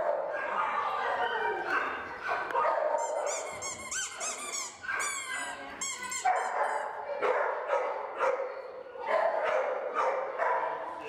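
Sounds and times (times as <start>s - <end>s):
dog barking and whining: 0.0s - 8.4s.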